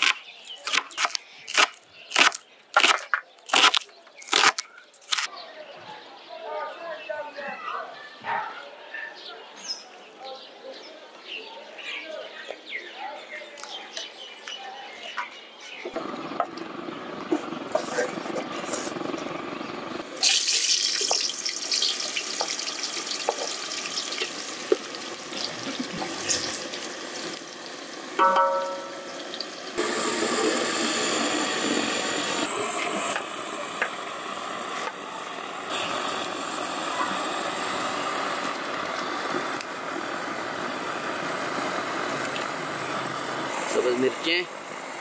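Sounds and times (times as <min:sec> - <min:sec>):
chicken sizzling in hot oil: 0:20.1 - 0:45.0.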